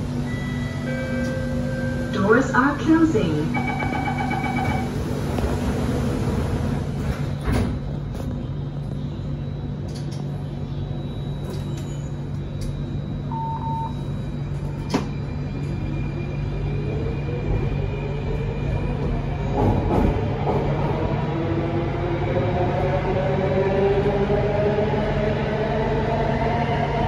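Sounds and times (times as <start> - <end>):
low hum inside metro car: 0.0 - 27.0
train doors knocking shut: 7.0 - 7.9
short beep: 13.3 - 14.0.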